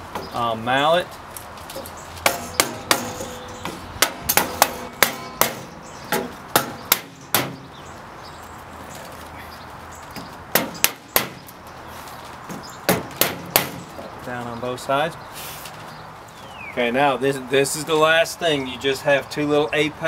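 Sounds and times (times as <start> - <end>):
hammer knocking on wood block: 2.2 - 7.6, 10.5 - 11.5, 12.9 - 13.9.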